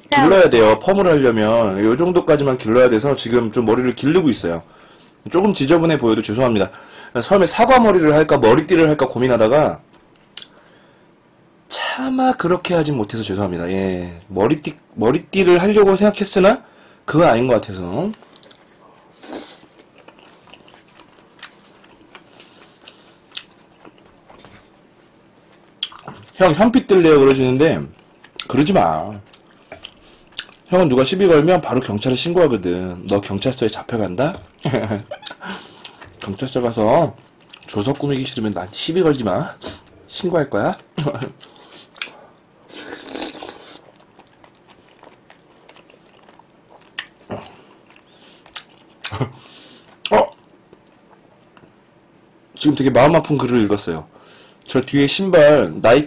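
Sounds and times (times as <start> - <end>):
person chewing food: 18.1 - 24.9, 25.5 - 26.4, 27.9 - 30.7, 34.4 - 36.4, 37.2 - 38.4, 41.3 - 52.4.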